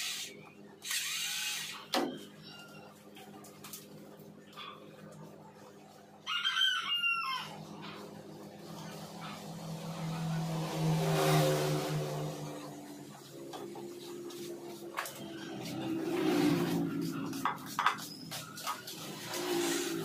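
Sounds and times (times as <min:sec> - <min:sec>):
motor: 0:00.0 - 0:02.1, 0:18.9 - 0:20.0
rooster crowing: 0:06.2 - 0:08.0.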